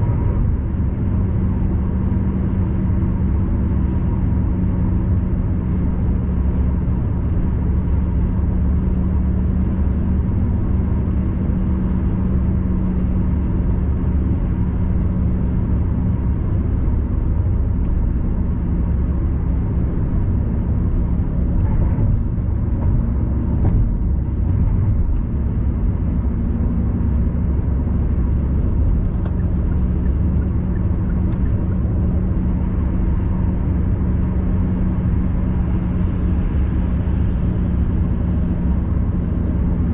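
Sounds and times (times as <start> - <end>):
car road noise rumble: 0.0 - 39.9.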